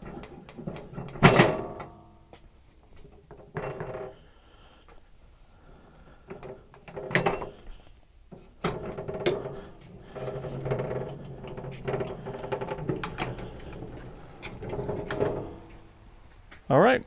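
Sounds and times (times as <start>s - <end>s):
rattling and rumbling: 5.7s - 16.5s.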